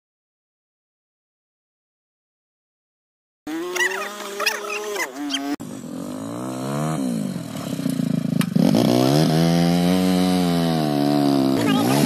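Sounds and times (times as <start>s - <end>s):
motorcycle engine revving: 3.5s - 12.0s.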